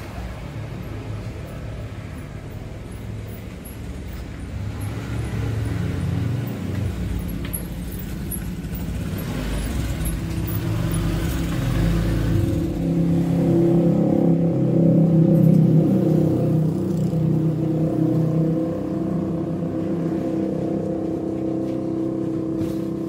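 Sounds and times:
van engine and road noise: 0.0 - 23.0.

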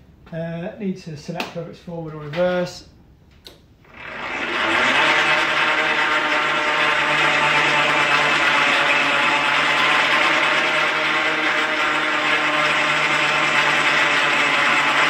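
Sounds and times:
electric motor hum and whine: 3.8 - 15.0.

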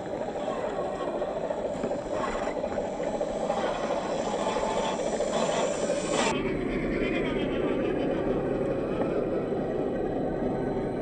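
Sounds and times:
electric motor and gears running: 0.0 - 6.3.

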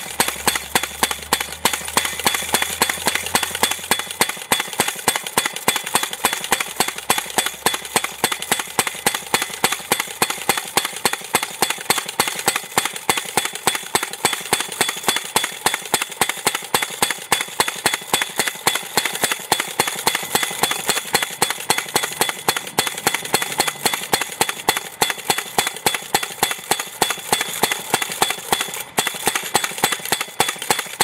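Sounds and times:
post driver hammering: 0.0 - 31.0.

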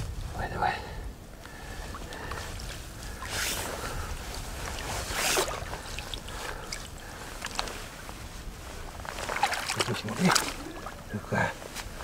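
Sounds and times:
water splashing: 9.0 - 11.2.

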